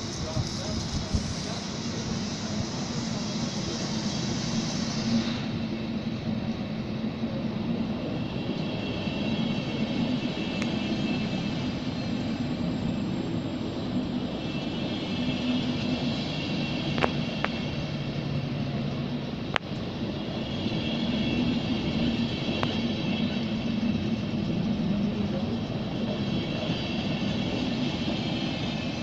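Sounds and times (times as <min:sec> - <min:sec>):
train hum and rumble: 0:00.0 - 0:29.0.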